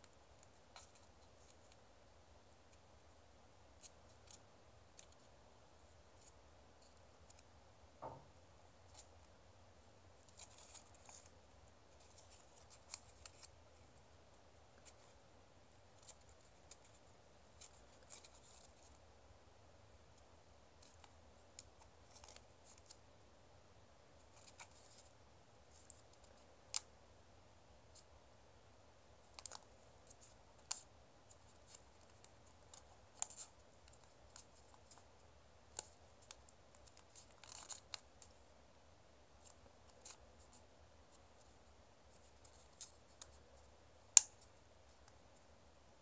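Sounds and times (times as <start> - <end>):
paper being folded and creased: 35.7 - 38.3.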